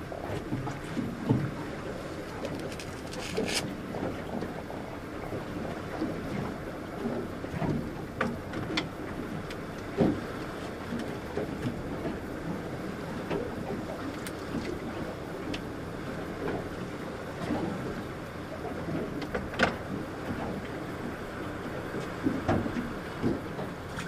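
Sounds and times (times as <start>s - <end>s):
water lapping against metal boat hull: 0.0s - 24.0s
fishing tackle clicks and knocks: 2.3s - 3.7s.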